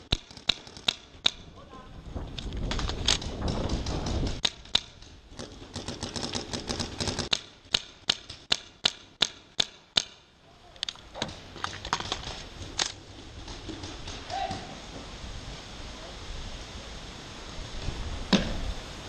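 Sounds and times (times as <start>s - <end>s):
paintball markers firing: 0.0s - 1.5s, 2.6s - 10.2s.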